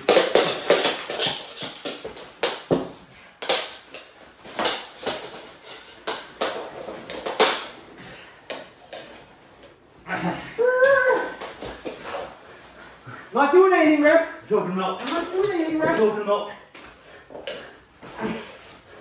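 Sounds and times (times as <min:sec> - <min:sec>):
plastic sticks clacking: 0:00.0 - 0:02.8, 0:03.4 - 0:07.8, 0:15.0 - 0:16.0.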